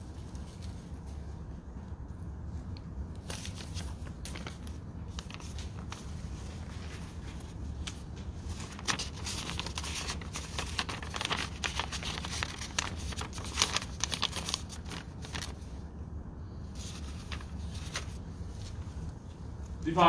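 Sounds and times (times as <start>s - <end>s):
low room hum: 0.0s - 20.0s
rustling and crackling: 2.5s - 15.8s.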